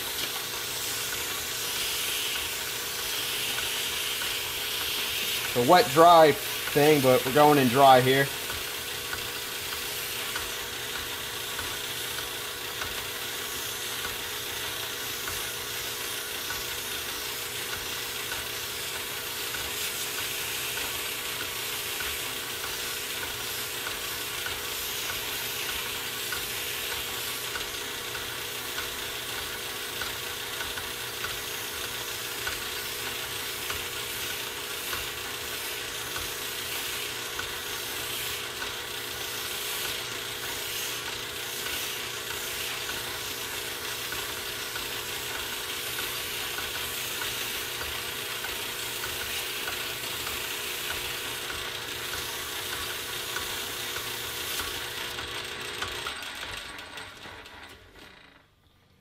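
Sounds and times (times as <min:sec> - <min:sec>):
sandpaper hissing on spinning shaft: 0:00.0 - 0:55.0
metal lathe humming: 0:32.8 - 0:56.8.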